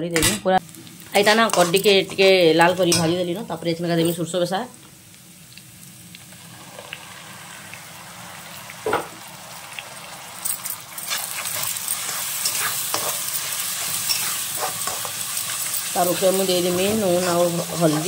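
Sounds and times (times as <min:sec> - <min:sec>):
vegetables sizzling in oil: 0:00.2 - 0:18.0
spatula scraping a pan: 0:11.0 - 0:18.0.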